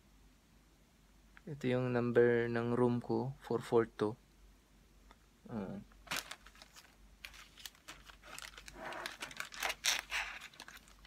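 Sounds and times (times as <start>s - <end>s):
plastic bag crinkling: 6.0s - 11.0s.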